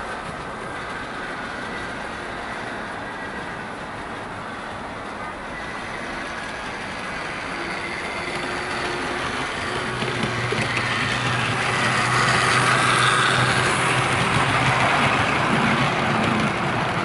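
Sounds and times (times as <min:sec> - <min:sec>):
wheels on rails: 0:00.0 - 0:17.0
model train motor whirring: 0:05.4 - 0:15.0.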